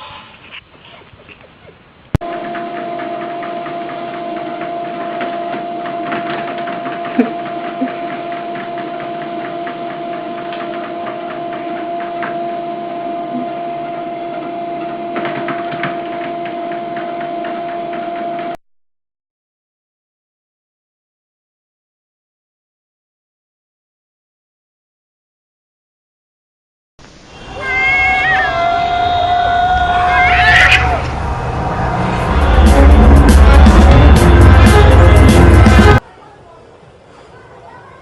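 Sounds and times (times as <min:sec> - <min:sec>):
treadmill motor whine: 0:02.2 - 0:18.6, 0:27.4 - 0:36.0.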